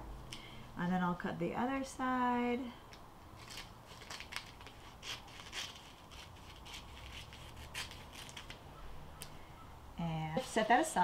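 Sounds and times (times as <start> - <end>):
scissors snipping paper: 3.4 - 8.6.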